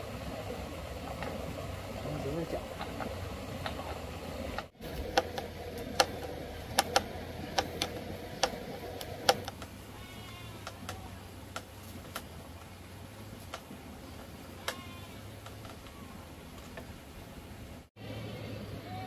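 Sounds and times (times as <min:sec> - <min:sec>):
hand tools tapping and clicking: 0:02.7 - 0:09.8, 0:10.5 - 0:12.8, 0:14.6 - 0:16.9.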